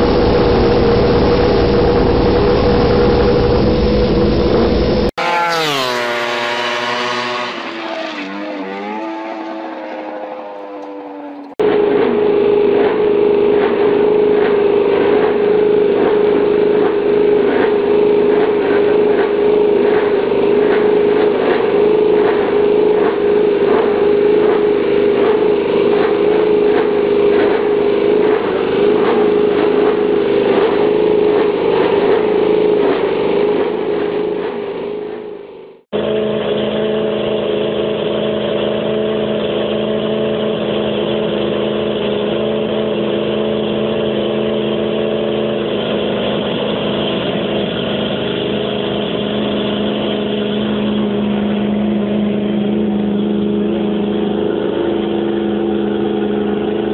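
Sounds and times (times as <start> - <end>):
racing motorcycle engine at high revs: 0.0 - 56.9.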